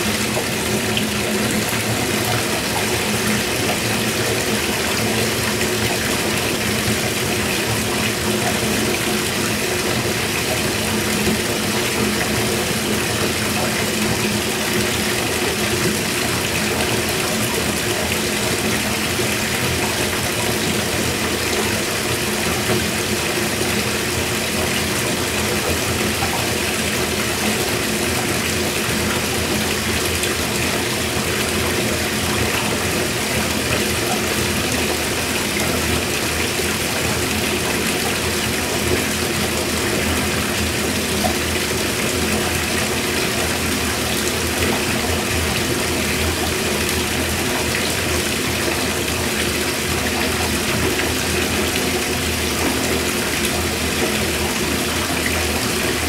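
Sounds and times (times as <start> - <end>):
water pouring into bathtub: 0.0 - 56.0.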